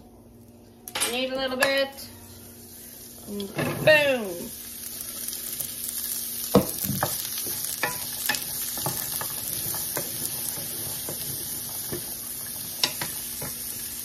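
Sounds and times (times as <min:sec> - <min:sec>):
vegetables sizzling in a skillet: 0:01.4 - 0:14.0.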